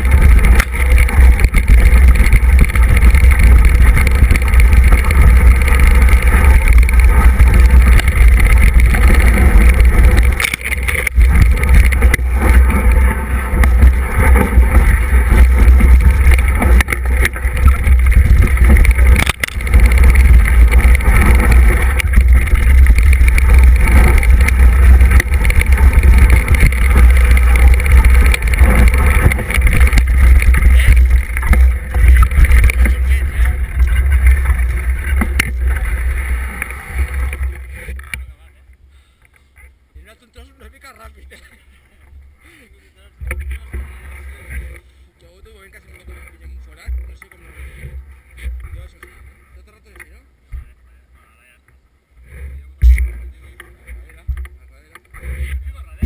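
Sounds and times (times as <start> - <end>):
bike rattling over stones: 0.0 - 38.5, 43.0 - 50.8, 52.3 - 56.0
wind rumble on microphone: 0.0 - 38.5, 52.2 - 56.0.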